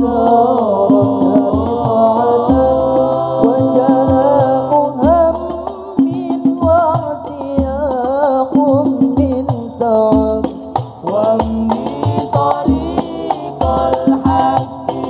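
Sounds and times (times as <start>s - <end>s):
male voices singing together: 0.0s - 15.0s.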